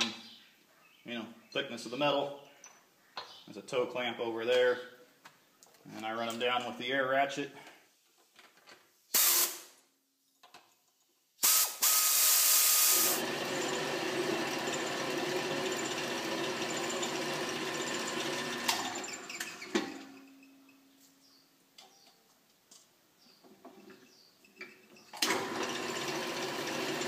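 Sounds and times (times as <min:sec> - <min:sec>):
air ratchet driving nuts: 0:09.2 - 0:09.7, 0:11.4 - 0:13.2
drill press cutting into steel: 0:11.4 - 0:19.8.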